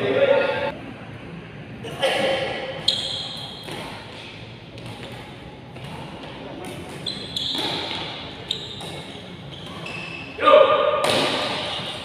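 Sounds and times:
brief high squeak: 0:02.8 - 0:03.7, 0:07.0 - 0:07.9.

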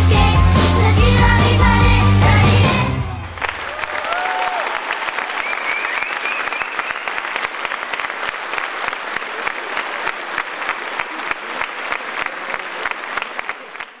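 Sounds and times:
audience applauding: 0:03.0 - 0:14.0.

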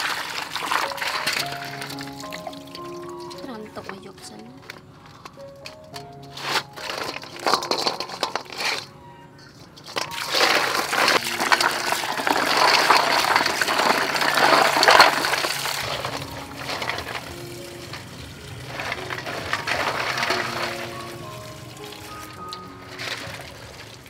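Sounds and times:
water pouring into basin: 0:00.0 - 0:03.5, 0:10.0 - 0:24.0
hands swishing and scrubbing in water: 0:00.0 - 0:04.0
snail shells clattering in metal basin: 0:00.0 - 0:24.0.

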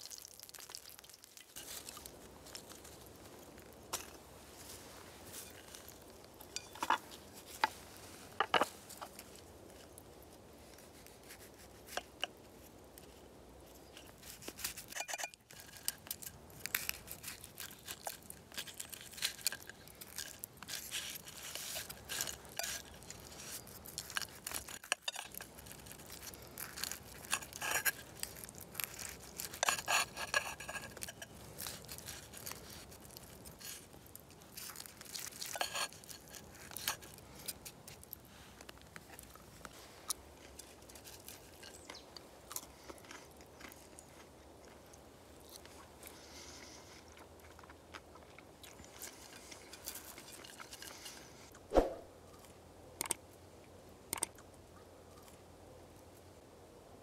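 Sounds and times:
cutlery scraping on clay plate: 0:14.8 - 0:15.6, 0:29.5 - 0:31.3, 0:35.4 - 0:37.0.

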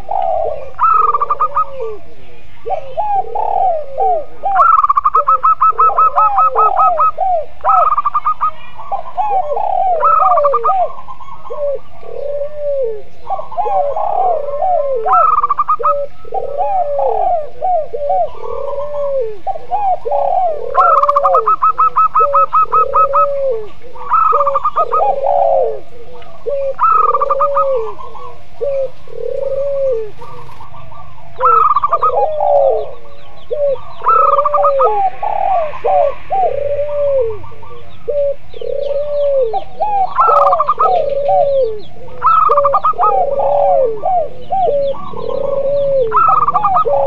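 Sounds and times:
doves cooing: 0:00.0 - 0:47.0.

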